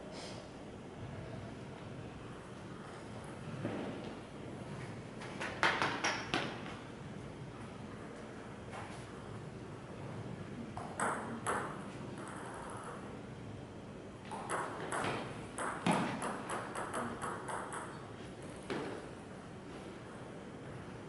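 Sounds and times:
table tennis rally: 10.7 - 13.1, 14.2 - 20.4.

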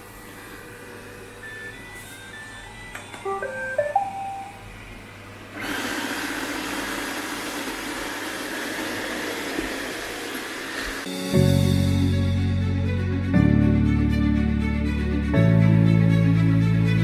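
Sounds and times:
robot vacuum beeping tune: 1.3 - 4.8
vacuum motor and brushes running: 5.5 - 11.1.

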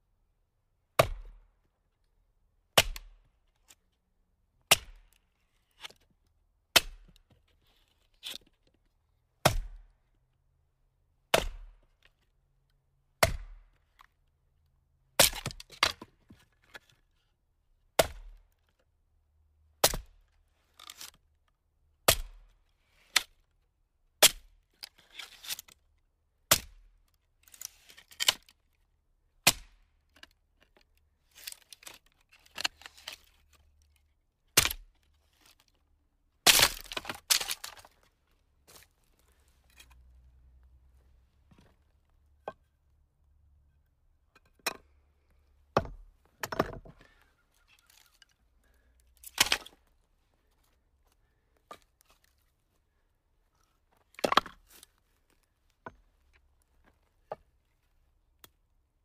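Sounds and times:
firewood splitting cracks: 15.2 - 16.1, 24.2 - 25.7, 27.5 - 28.6, 29.4 - 30.3, 31.4 - 33.5, 34.5 - 35.6, 36.4 - 38.0, 45.8 - 49.9
wood knocks and crackles: 45.7 - 48.3.

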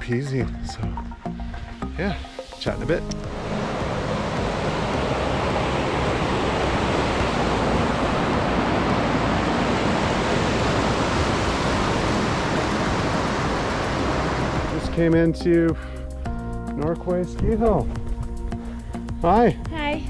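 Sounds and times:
creek rushing over rocks: 2.6 - 15.2.

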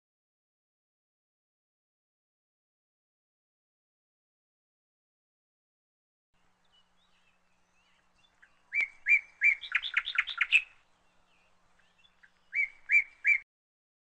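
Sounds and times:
bird chirping: 6.4 - 13.4.

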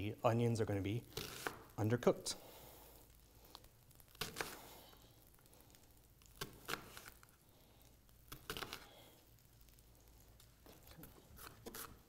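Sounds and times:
knife slicing onion on board: 1.1 - 1.7, 11.4 - 12.0.

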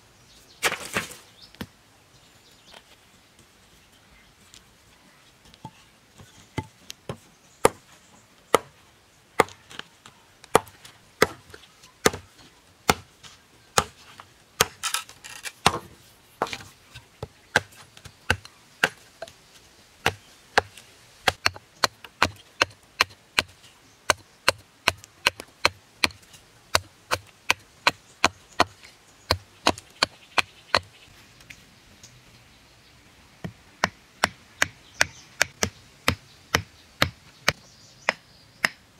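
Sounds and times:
hatchet chopping wood: 9.4 - 9.6, 10.5 - 12.3, 12.9 - 13.1, 13.8 - 14.0, 14.6 - 15.0, 15.6 - 16.6, 17.5 - 19.0, 20.0 - 30.9, 33.4 - 38.8.

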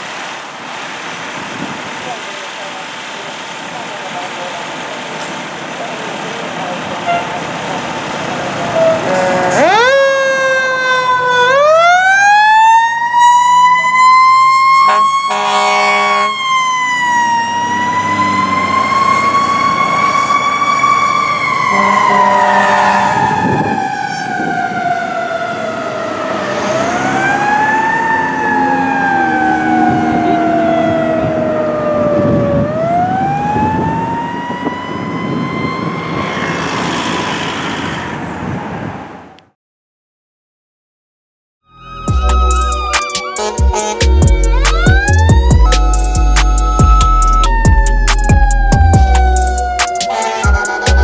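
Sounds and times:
air horn blasts: 7.0 - 7.4, 8.8 - 9.8, 14.8 - 16.4, 21.7 - 23.3, 43.3 - 44.6, 50.0 - 51.0.

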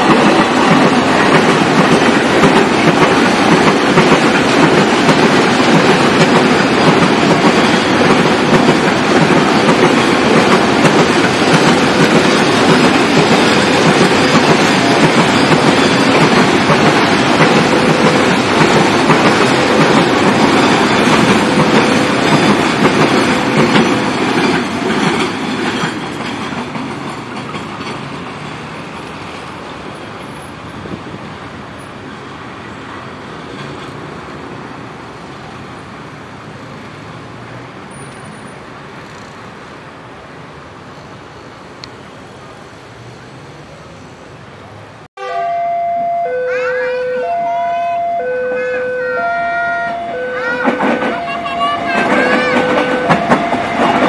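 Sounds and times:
freight train wheels clattering: 0.0 - 30.9, 50.6 - 54.0.

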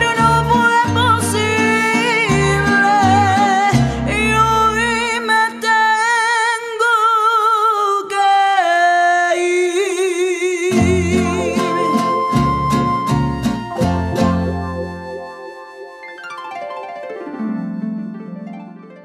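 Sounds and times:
plucked guitars: 0.0 - 5.6, 10.7 - 16.9
sung melody with vibrato: 0.0 - 5.6, 10.7 - 18.8
deep bass line: 10.8 - 15.8.

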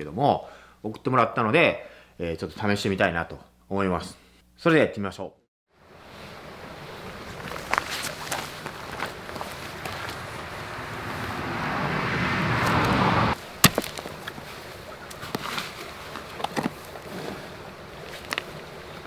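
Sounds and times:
rush of wind or passing vehicle: 9.5 - 13.4.

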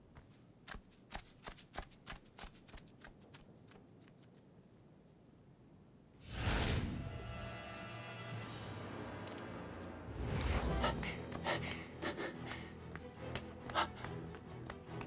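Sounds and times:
quick footsteps: 0.0 - 4.5, 11.2 - 15.0.

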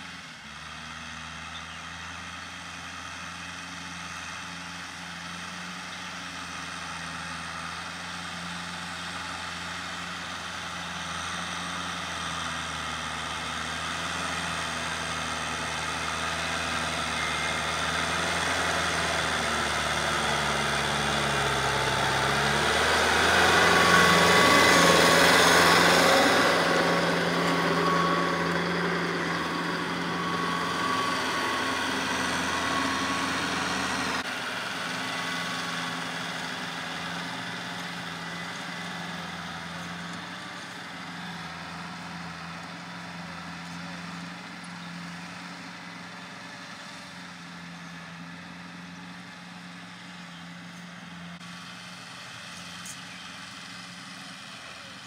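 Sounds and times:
rotary tiller in soil: 0.0 - 55.0
tractor diesel engine under load: 0.0 - 55.0.

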